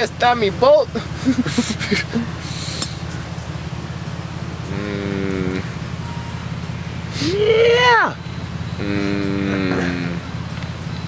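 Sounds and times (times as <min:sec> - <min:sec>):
steady low hum: 0:00.1 - 0:07.4, 0:08.2 - 0:11.0
held vocal note: 0:04.7 - 0:05.8, 0:08.8 - 0:10.3.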